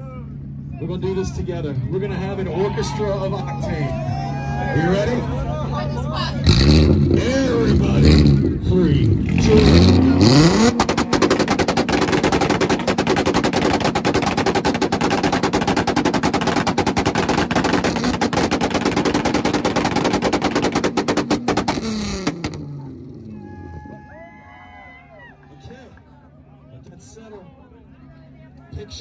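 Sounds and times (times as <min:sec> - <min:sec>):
car engine revving: 0:00.3 - 0:23.9
exhaust pops and bangs: 0:09.3 - 0:22.8.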